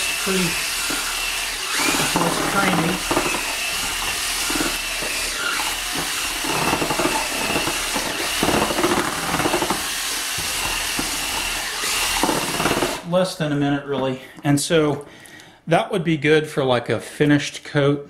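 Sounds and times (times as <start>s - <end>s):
cordless drill motor whine: 0.0s - 13.0s
mixer paddle churning compound: 0.0s - 13.2s.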